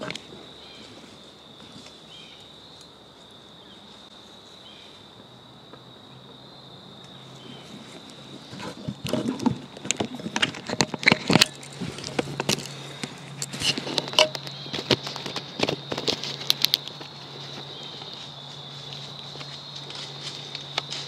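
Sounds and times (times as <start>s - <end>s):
camera handling clicks and rustles: 8.6s - 17.0s.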